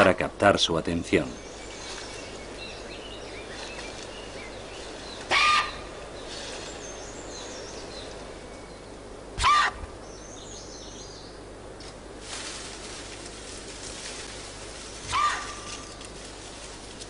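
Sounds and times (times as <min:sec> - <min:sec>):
faint birdsong: 0:00.0 - 0:17.0
panda cub calling: 0:05.2 - 0:06.0, 0:09.4 - 0:09.9, 0:15.0 - 0:15.8.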